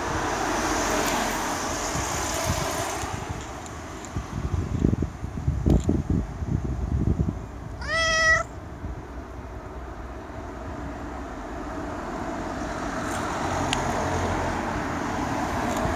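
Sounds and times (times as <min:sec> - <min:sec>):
traffic hum: 0:00.0 - 0:15.9
cat meowing: 0:07.8 - 0:08.5.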